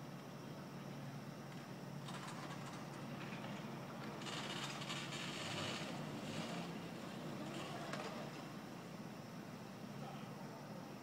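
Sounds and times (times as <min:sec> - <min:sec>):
mechanical rattling and clattering: 0:04.2 - 0:06.6.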